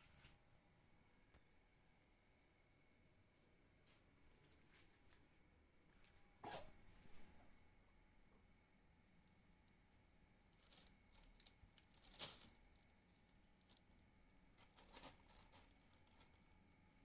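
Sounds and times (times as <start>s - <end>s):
plastic bag crinkling: 10.5s - 13.9s, 14.5s - 16.8s.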